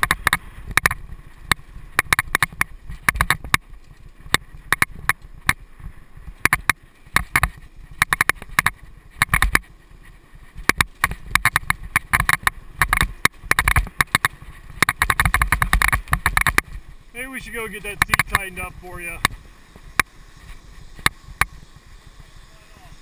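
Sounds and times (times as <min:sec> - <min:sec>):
bike clicking and rattling: 0:00.0 - 0:23.0
bike tyres rumbling on dirt: 0:00.0 - 0:23.0
wind on microphone: 0:17.8 - 0:23.0.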